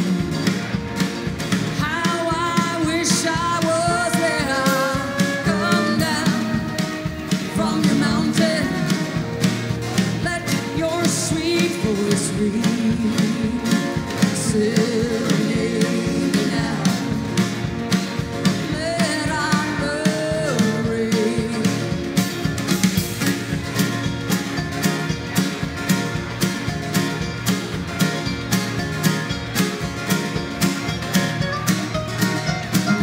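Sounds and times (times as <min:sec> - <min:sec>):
acoustic and electric guitars: 0:00.0 - 0:33.0
drums keeping a steady beat: 0:00.0 - 0:33.0
fiddle: 0:00.0 - 0:33.0
plucked upright bass: 0:00.0 - 0:33.0
woman singing lead: 0:01.7 - 0:17.8, 0:18.4 - 0:22.3.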